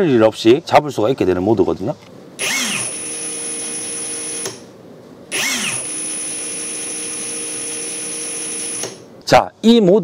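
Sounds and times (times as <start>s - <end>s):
impact wrench motor whine: 2.4s - 4.7s, 5.3s - 9.1s.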